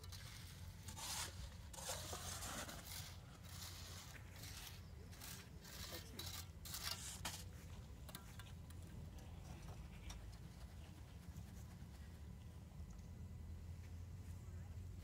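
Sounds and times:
shovel scraping wet concrete: 0:00.0 - 0:07.6.

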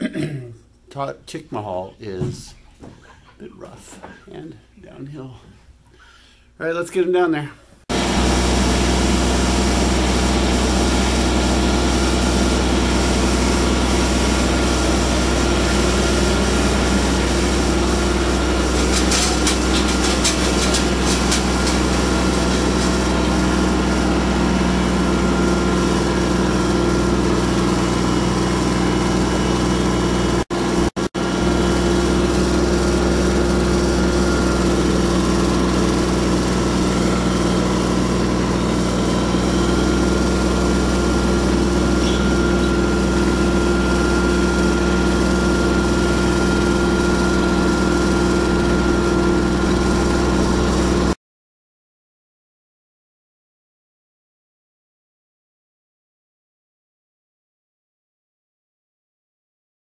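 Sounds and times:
small tractor engine running: 0:07.9 - 0:51.2.

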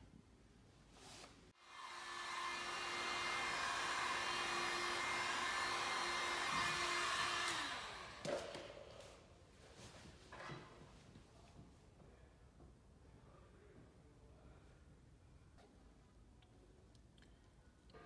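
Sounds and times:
electric blower motor humming: 0:01.6 - 0:08.3.

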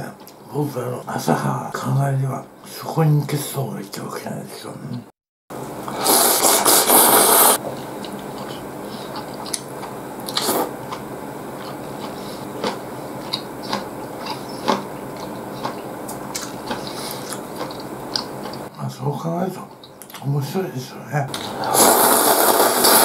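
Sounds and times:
person slurping noodles: 0:05.9 - 0:07.6, 0:10.3 - 0:10.8, 0:21.3 - 0:23.0
person chewing: 0:05.9 - 0:18.7, 0:21.3 - 0:23.0.

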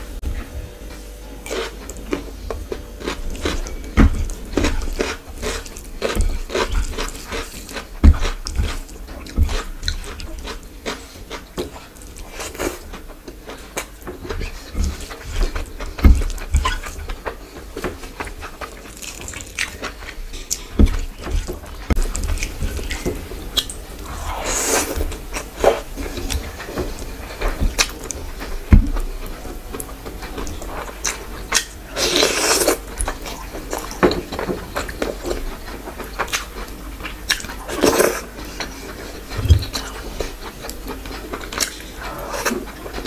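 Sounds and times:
soft low thumps: 0:39.3 - 0:39.8.

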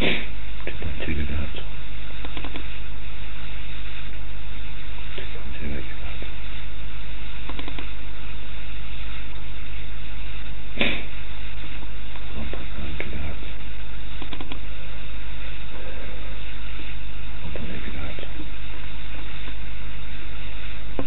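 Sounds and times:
faint hiss: 0:00.0 - 0:21.0
low hum: 0:00.0 - 0:21.0
sharp click: 0:02.2 - 0:02.7, 0:07.5 - 0:07.9, 0:14.2 - 0:14.6.

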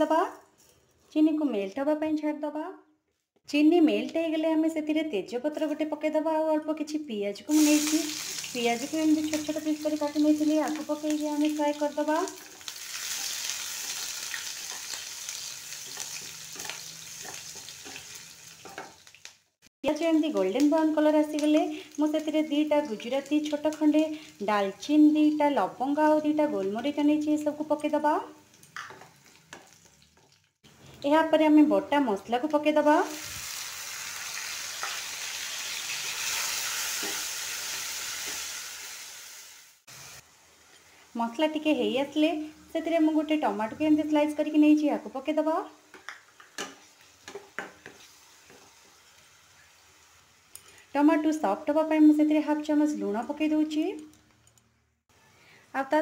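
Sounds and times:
onions sizzling in hot oil: 0:07.5 - 0:30.5, 0:32.4 - 0:53.5.

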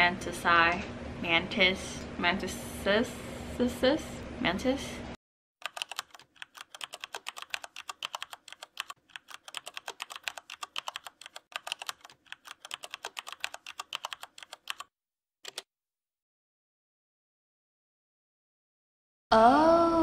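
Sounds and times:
typing on computer keyboard: 0:05.6 - 0:15.7.

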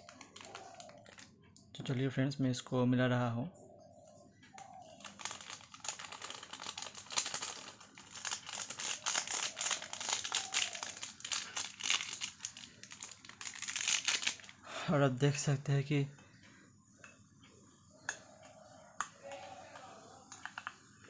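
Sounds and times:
foil sachet crinkling: 0:00.0 - 0:01.3, 0:04.9 - 0:14.6.

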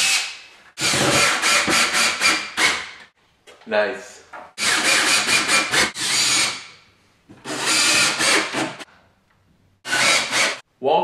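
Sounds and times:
cordless drill driving screws: 0:04.6 - 0:06.6, 0:07.4 - 0:08.8, 0:09.9 - 0:10.6.

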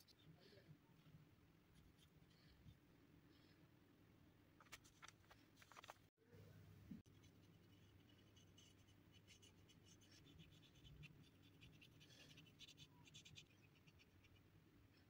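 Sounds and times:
brush scratching on paper: 0:07.1 - 0:14.4.

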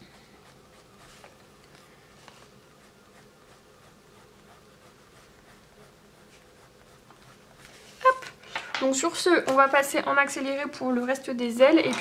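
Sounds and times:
pencil scratching on paper: 0:00.0 - 0:08.1.

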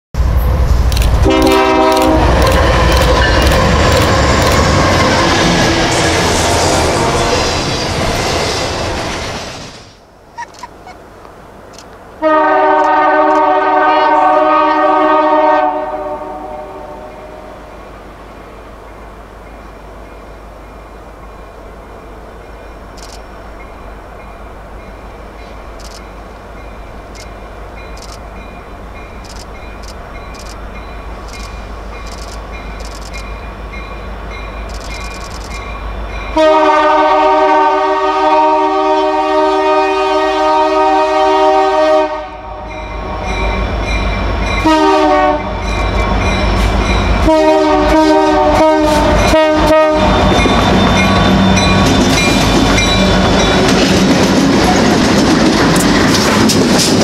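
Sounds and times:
train rumble: 0:00.2 - 0:57.0
locomotive air horn chord: 0:01.2 - 0:02.4, 0:12.2 - 0:17.6, 0:36.4 - 0:42.7, 0:44.6 - 0:45.6, 0:47.2 - 0:50.2
short sharp clicks: 0:34.7 - 0:35.6
wheels clicking over rail joints: 0:51.6 - 0:57.0.

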